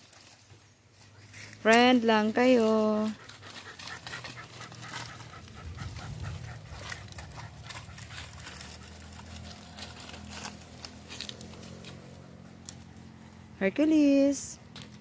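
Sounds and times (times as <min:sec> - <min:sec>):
dogs scuffling in dry leaves: 0:00.0 - 0:14.4
dogs panting: 0:01.0 - 0:11.1.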